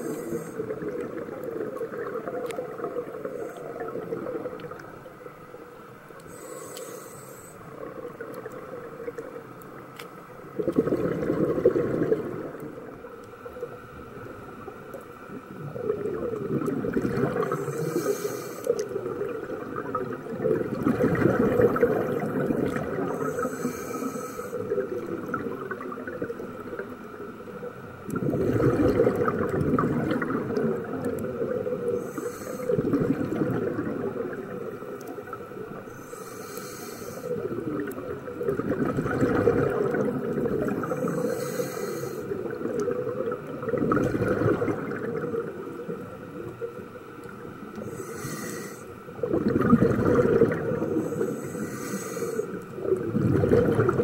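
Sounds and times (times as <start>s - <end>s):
regulator inhale hiss: 0.0s - 0.9s, 3.0s - 4.2s, 6.2s - 8.8s, 17.3s - 19.6s, 23.0s - 25.0s, 31.1s - 33.1s, 35.8s - 37.8s, 40.8s - 42.6s, 47.6s - 49.1s, 50.8s - 53.0s
exhaled air bubbling: 0.0s - 54.0s.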